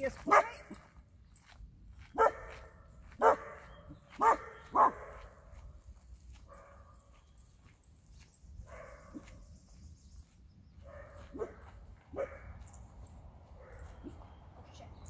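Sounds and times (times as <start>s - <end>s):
dog barking: 0.3s - 0.6s, 2.2s - 5.4s, 6.5s - 6.9s, 8.7s - 9.4s, 10.8s - 12.7s, 13.6s - 14.2s.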